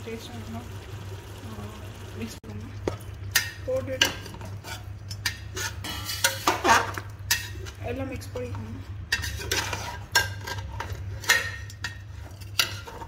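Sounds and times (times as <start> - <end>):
steady low hum: 0.0 - 13.0
metal spoon scraping cooking pot: 4.0 - 7.8, 9.1 - 13.0.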